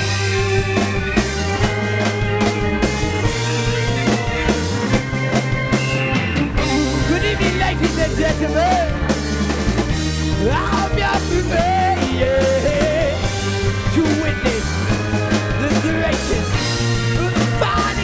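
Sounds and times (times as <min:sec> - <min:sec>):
live band playing: 0:00.0 - 0:18.0
person singing: 0:06.6 - 0:09.0, 0:10.4 - 0:13.3, 0:17.2 - 0:18.0.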